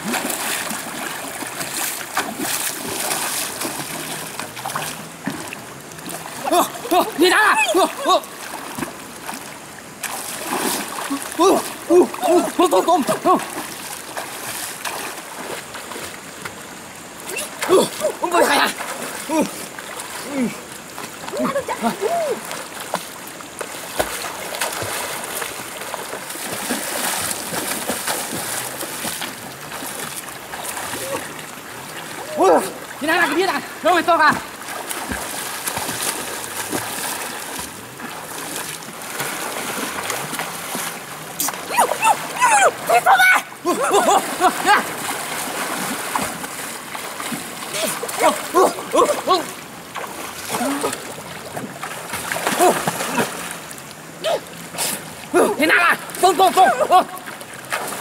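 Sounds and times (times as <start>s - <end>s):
water splashing and sloshing: 0.0s - 58.0s.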